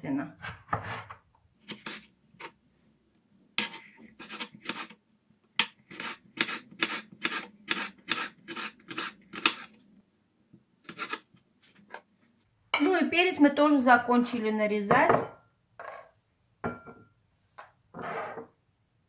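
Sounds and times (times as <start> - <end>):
knife slicing on plastic board: 1.6 - 2.6, 3.6 - 5.0, 5.6 - 9.7.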